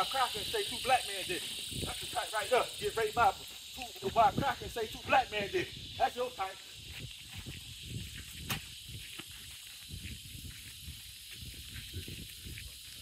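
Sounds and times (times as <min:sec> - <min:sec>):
outdoor hiss: 0:00.0 - 0:13.0
footsteps on concrete: 0:03.2 - 0:05.3, 0:06.1 - 0:13.0.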